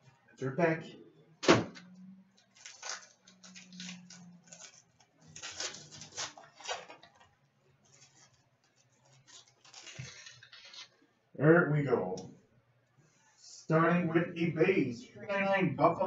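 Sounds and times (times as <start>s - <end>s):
wrapper crinkling: 2.4s - 11.0s.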